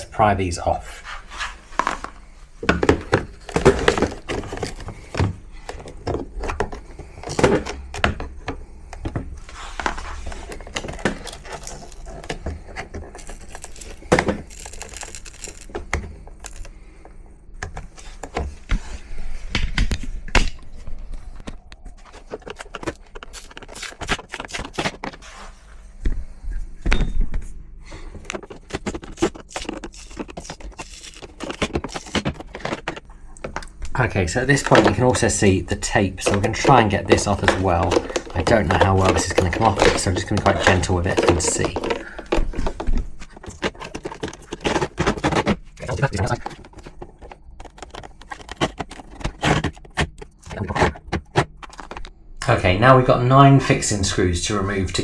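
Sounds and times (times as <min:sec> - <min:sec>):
screwdriver scraping plastic: 0:09.8 - 0:16.7, 0:28.2 - 0:33.1, 0:36.2 - 0:52.1.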